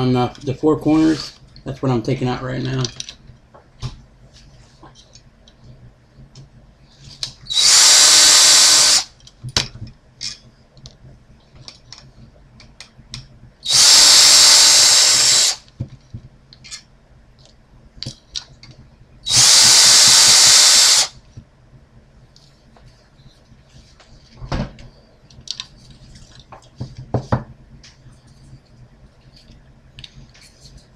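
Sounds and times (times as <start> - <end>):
cordless drill spinning out screws: 7.5 - 9.1, 13.7 - 15.6, 19.3 - 21.1.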